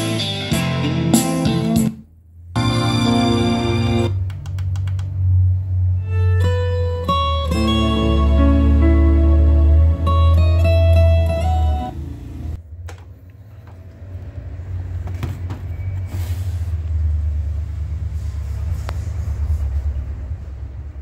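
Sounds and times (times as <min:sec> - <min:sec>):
music from boombox: 0:00.0 - 0:02.0, 0:02.6 - 0:04.2, 0:06.0 - 0:12.0
sharp clicks: 0:04.2 - 0:05.2.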